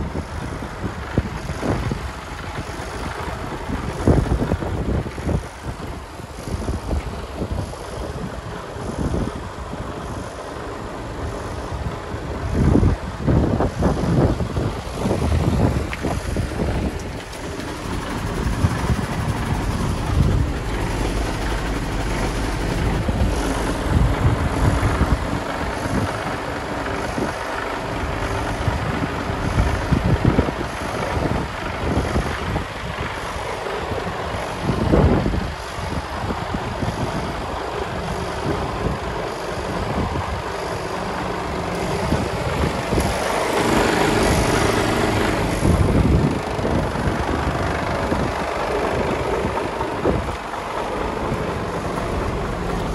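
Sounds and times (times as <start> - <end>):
diesel truck engine idling: 0.0 - 52.9.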